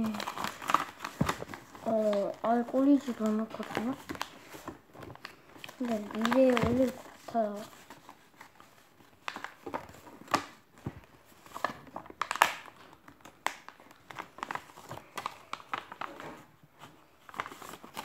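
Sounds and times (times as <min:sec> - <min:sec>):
paper being folded and creased: 0:00.0 - 0:18.0
sharp paper crackles: 0:00.0 - 0:18.0.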